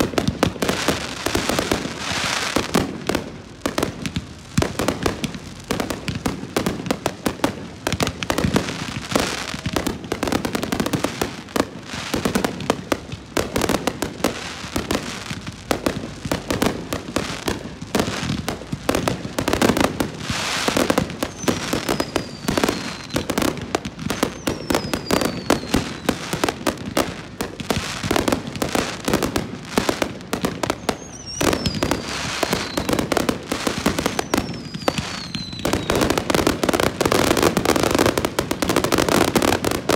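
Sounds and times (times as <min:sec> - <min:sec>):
firework crackling: 0:00.0 - 0:39.9
firework whistles falling in pitch: 0:21.2 - 0:23.4, 0:24.0 - 0:26.3, 0:30.7 - 0:33.1, 0:33.9 - 0:36.2.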